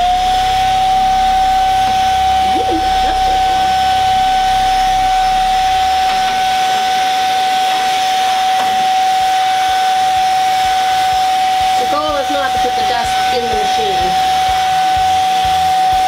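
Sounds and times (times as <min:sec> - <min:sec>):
low rumble: 0:00.0 - 0:07.6
vacuum motor whine: 0:00.0 - 0:16.0.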